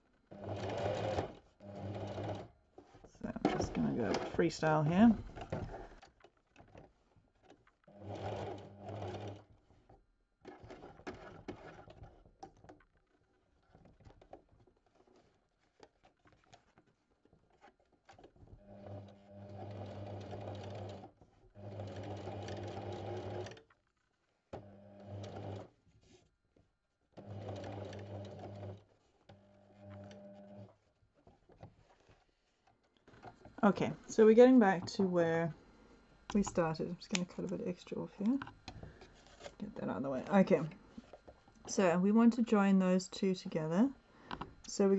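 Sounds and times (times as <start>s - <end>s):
sewing machine stitching: 0.2s - 23.8s, 24.5s - 25.8s, 27.2s - 30.9s.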